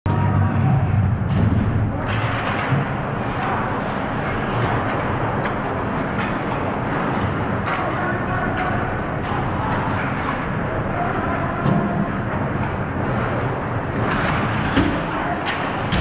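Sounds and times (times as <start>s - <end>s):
low rumble: 0.1s - 7.8s
hockey sticks and puck clacking: 1.3s - 16.0s.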